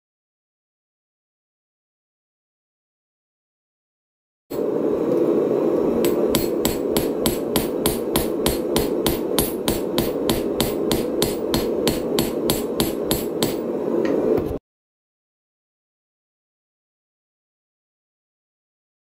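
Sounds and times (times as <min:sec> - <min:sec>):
low rushing noise: 0:04.5 - 0:14.6
hammer blows on metal: 0:06.0 - 0:13.7.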